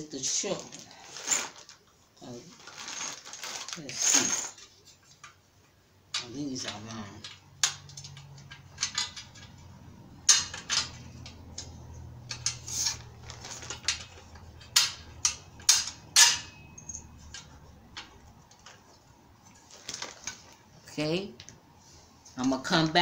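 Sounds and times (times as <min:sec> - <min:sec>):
metal hardware clinking and knocking: 0:06.1 - 0:18.8.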